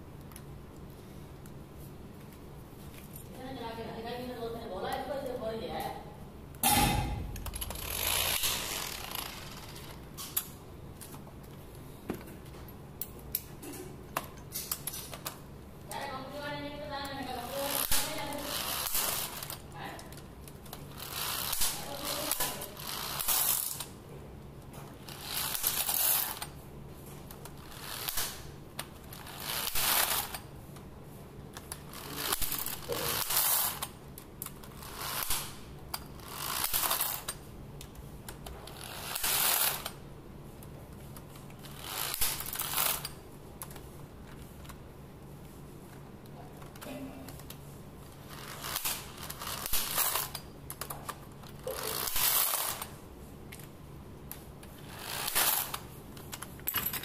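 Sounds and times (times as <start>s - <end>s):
electric screwdriver whirring: 7.4s - 10.0s.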